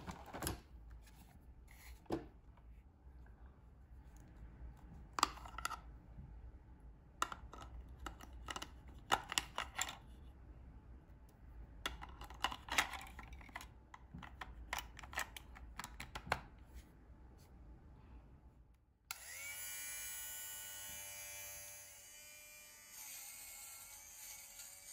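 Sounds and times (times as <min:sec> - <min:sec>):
plastic clicks and rattles: 0:07.2 - 0:10.0, 0:11.9 - 0:16.4.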